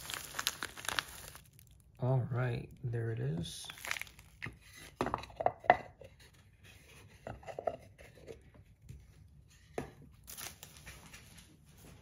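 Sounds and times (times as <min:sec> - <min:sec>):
packaging crinkling: 0:00.0 - 0:02.0, 0:03.6 - 0:04.6, 0:10.2 - 0:11.4.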